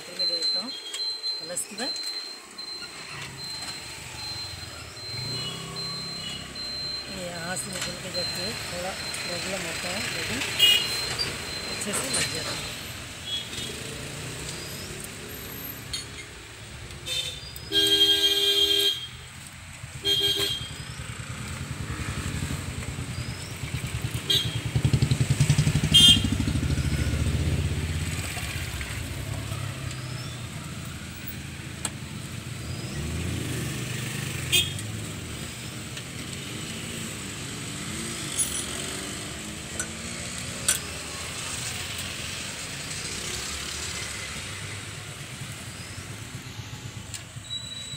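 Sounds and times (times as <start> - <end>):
vehicle horn tooting: 10.6 - 10.9, 17.1 - 19.2, 20.0 - 20.7, 24.3 - 24.6, 25.9 - 26.5, 34.5 - 34.8
vehicle engine rumbling past: 21.0 - 35.6.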